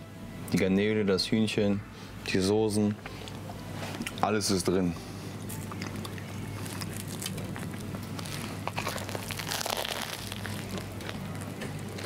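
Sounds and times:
steady low hum: 0.0s - 12.0s
crunching bite of toasted crust: 5.4s - 12.0s
crackles of bread being gripped: 5.9s - 12.0s.

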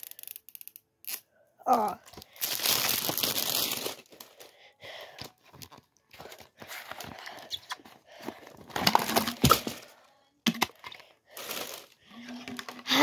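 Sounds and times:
plastic packaging crackling: 2.1s - 4.5s, 11.3s - 12.7s.

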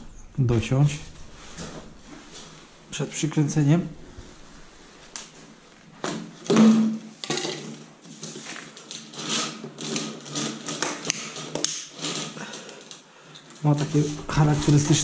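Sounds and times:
plastic duct scraping on concrete: 8.0s - 12.6s.

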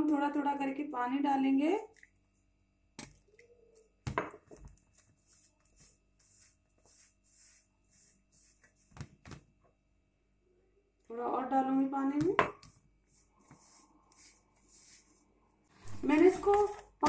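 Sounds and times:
fingers rubbing flour: 4.9s - 8.8s.

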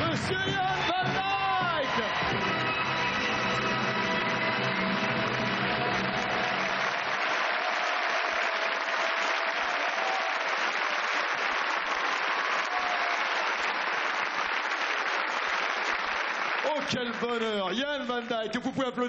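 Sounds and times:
audience applauding: 0.0s - 18.9s.

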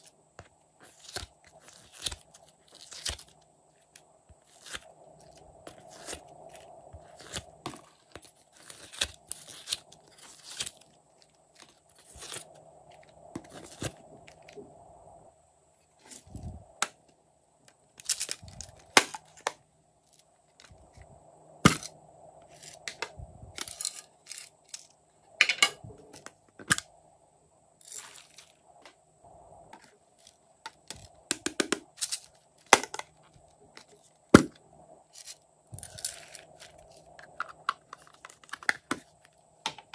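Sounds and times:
plastic cases clicking and scraping: 30.7s - 39.9s.

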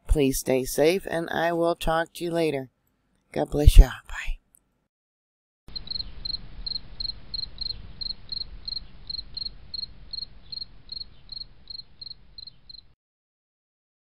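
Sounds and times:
cricket chirping: 5.7s - 13.0s.

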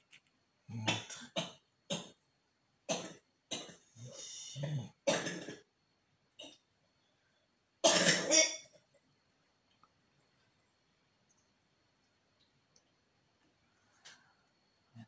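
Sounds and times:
man clearing throat: 0.7s - 2.1s, 2.9s - 5.6s.

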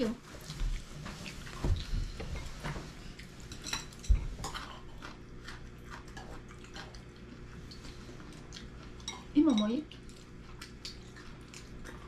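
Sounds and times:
chopsticks and spoons clicking on bowls: 3.5s - 5.1s, 8.6s - 12.0s.

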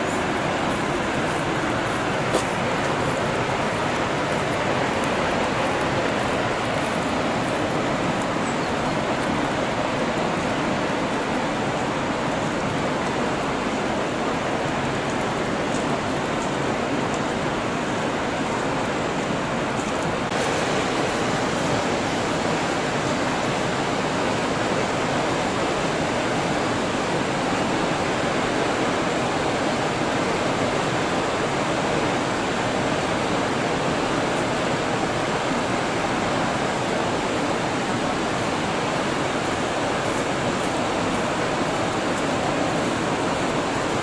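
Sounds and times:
waterfall rushing: 0.0s - 44.0s.

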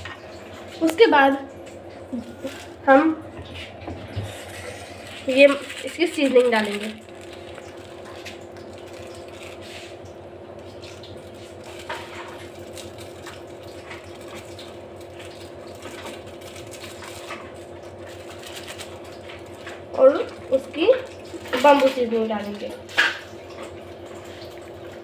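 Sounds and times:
steady low hum: 0.0s - 25.0s
plastic sachets crinkling: 2.0s - 2.9s, 4.4s - 10.0s, 10.6s - 22.0s.

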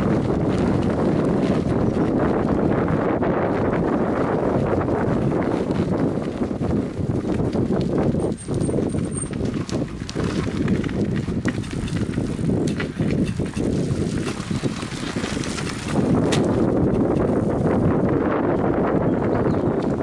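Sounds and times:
wind rumbling on microphone: 0.0s - 20.0s
tyres crunching on gravel: 4.4s - 17.4s
tricycle clicks and rattles: 5.6s - 17.4s.

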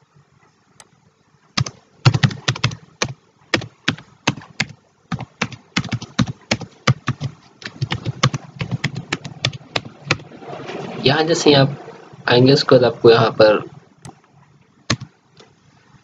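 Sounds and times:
keyboard typing: 1.6s - 10.3s, 14.9s - 15.1s.

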